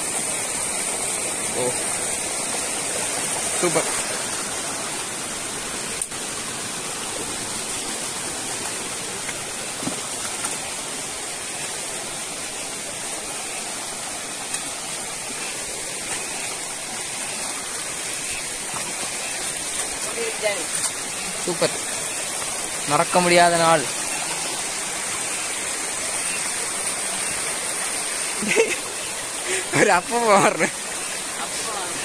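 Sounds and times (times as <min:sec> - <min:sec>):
stream rushing over stones: 0:00.0 - 0:32.0.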